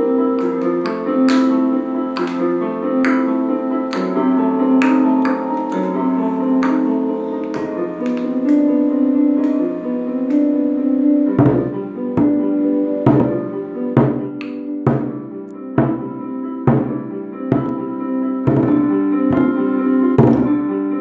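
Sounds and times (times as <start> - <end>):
melodic keyboard music: 0.0 - 21.0.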